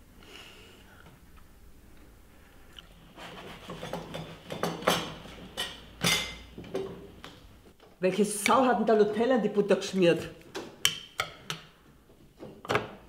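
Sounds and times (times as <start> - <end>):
faint chewing: 2.7 - 3.0.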